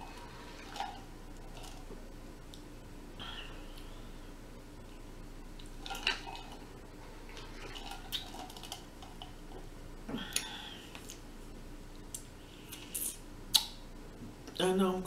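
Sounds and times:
mouth and lip clicks: 12.1s - 13.8s.

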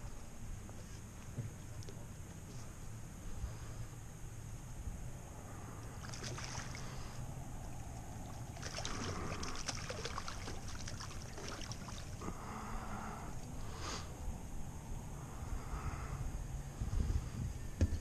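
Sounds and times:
steady low hum: 0.0s - 18.0s
fish splashing in water: 6.0s - 12.2s.

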